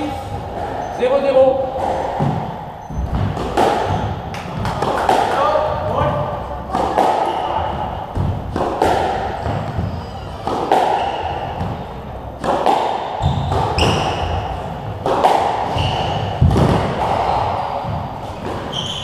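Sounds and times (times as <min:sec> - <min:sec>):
squash ball hits: 0:01.7 - 0:19.0
shoe squeaks on wooden floor: 0:02.8 - 0:04.2, 0:09.4 - 0:11.6, 0:13.2 - 0:14.4, 0:15.7 - 0:16.4, 0:18.3 - 0:19.0.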